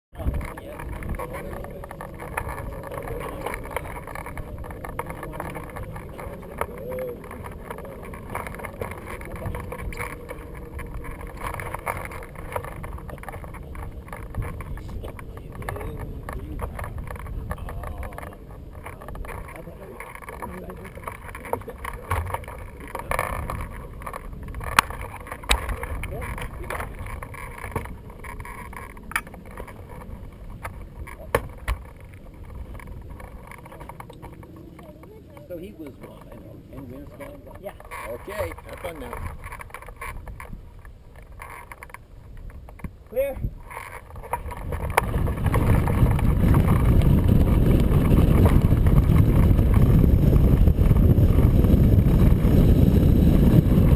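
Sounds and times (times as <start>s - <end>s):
wind buffeting microphone: 0.1s - 53.9s
sharp knocks and clicks: 0.3s - 35.0s.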